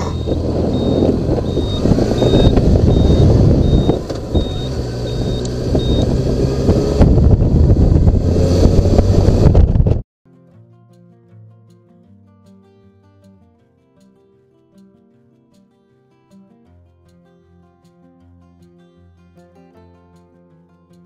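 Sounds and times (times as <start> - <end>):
short high beeps: 0.0 - 6.1
motorcycle engine running: 0.0 - 10.0
wind rush on microphone: 0.0 - 10.0.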